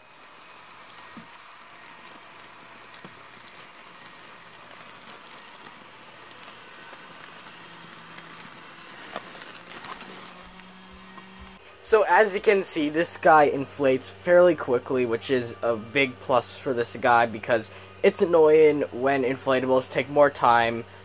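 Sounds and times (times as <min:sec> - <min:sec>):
electric blower fan running: 0:00.0 - 0:21.0
fabric crackling: 0:00.5 - 0:11.6.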